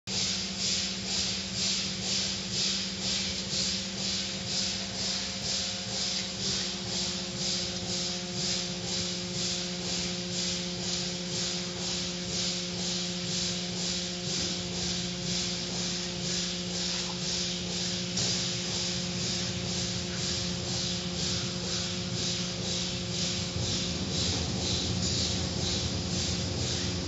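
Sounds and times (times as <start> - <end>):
machinery hum: 0.1 - 27.0.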